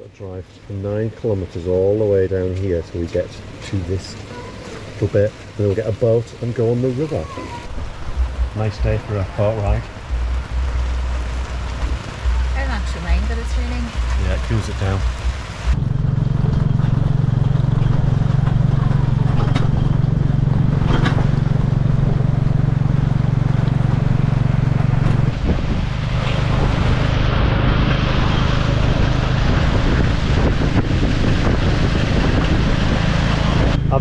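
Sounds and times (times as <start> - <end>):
road and wind noise: 0.0 - 34.0
motorcycle engine droning: 7.7 - 34.0.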